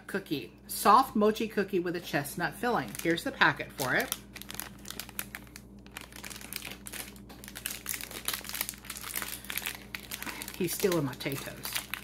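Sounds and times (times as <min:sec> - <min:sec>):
plastic packaging crackling: 0:02.6 - 0:12.0.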